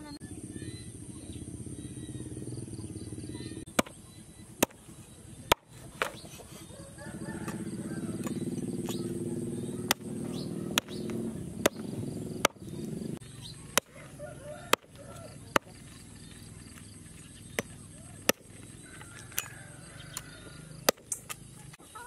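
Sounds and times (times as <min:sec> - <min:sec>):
cleaver chopping meat and bone: 0:03.7 - 0:06.5, 0:07.2 - 0:21.8.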